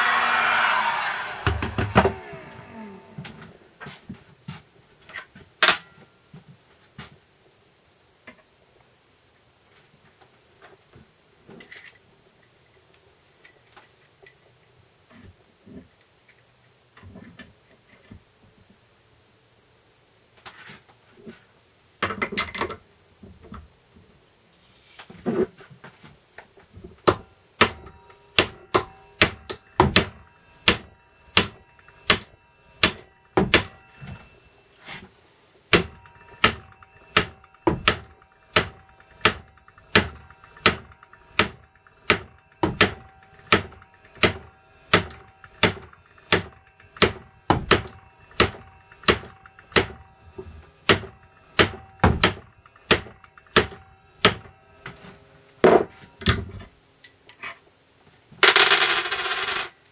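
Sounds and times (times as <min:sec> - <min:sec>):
hammer striking metal: 0:27.0 - 0:34.6, 0:35.7 - 0:56.6.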